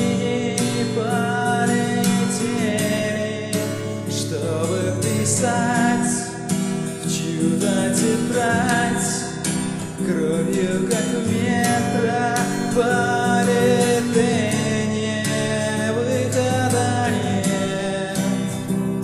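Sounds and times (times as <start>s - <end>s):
acoustic guitar strumming: 0.0s - 19.0s
man singing: 0.0s - 19.0s.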